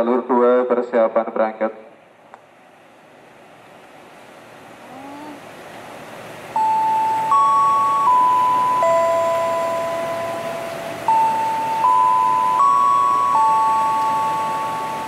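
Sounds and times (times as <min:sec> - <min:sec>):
electronic bell-like chime melody: 0:06.6 - 0:15.0.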